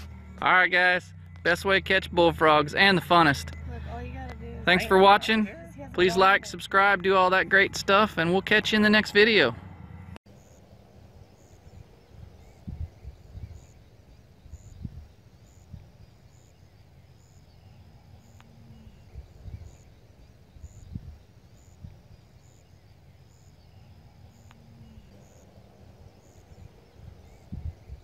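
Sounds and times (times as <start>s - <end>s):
faint high chirp: 1.1s - 4.9s
wind rumble on microphone: 10.6s - 28.0s.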